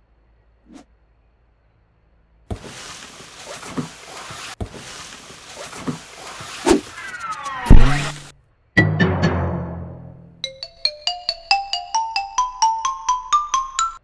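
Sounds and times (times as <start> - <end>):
rustling hiss: 2.5 - 8.3.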